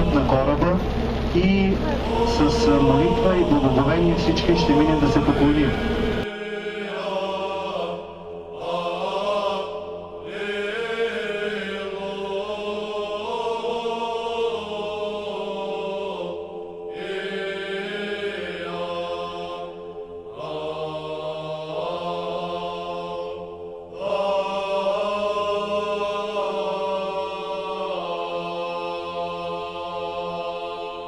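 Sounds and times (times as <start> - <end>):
held low drone: 0.0 - 6.3
chant melody sung: 0.0 - 31.0.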